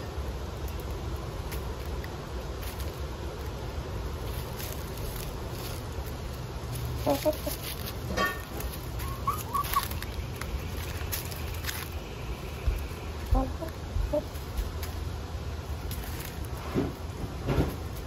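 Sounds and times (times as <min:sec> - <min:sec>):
pecking and scratching in leaves: 0:00.0 - 0:18.0
hens clucking: 0:04.4 - 0:15.0.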